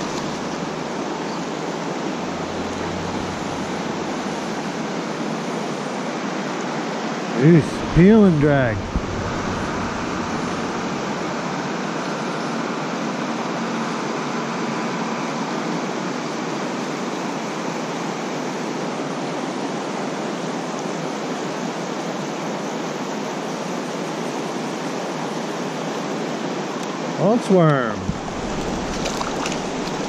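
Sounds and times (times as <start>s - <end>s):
river rushing over riffles: 0.0s - 12.3s, 27.2s - 30.0s.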